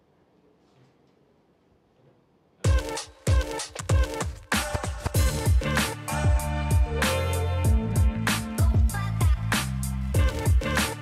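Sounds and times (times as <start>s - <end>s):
electronic music with heavy beat: 2.6s - 11.0s.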